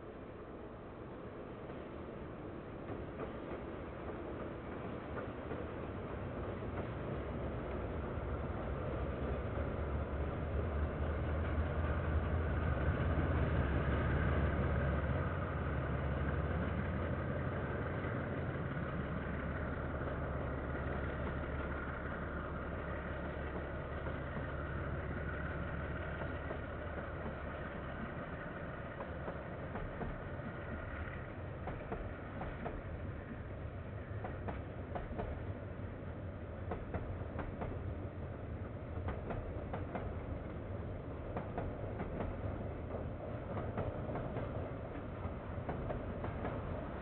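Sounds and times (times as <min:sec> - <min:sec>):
diesel train engine rumble: 0:00.0 - 0:47.0
train wagons rolling: 0:02.6 - 0:47.0.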